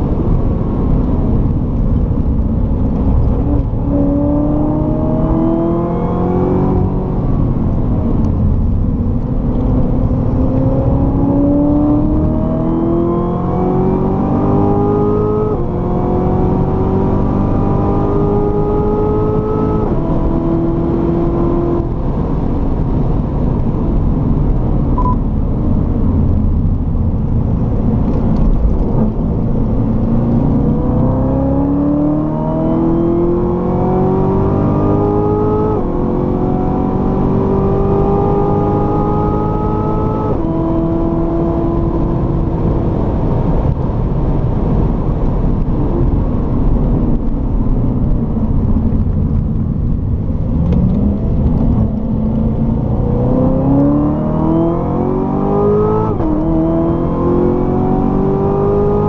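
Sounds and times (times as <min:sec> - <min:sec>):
car engine accelerating hard: 0:00.0 - 0:59.0.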